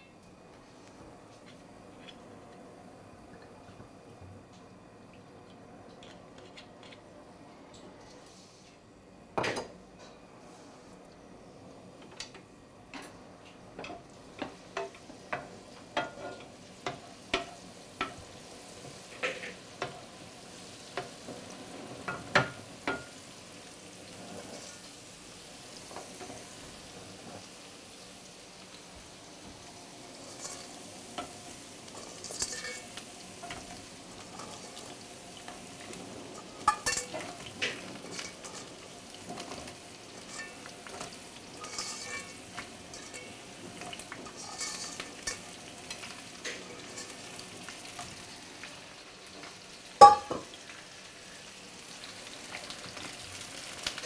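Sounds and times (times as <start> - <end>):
shellfish sizzling in oil: 8.3 - 54.0
wooden spoon scraping a pan: 31.9 - 34.9, 36.3 - 48.1.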